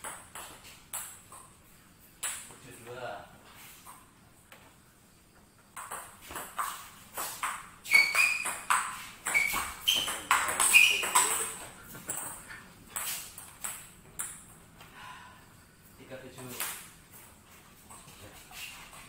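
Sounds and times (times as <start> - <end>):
table tennis ball clicking: 10.0 - 12.4.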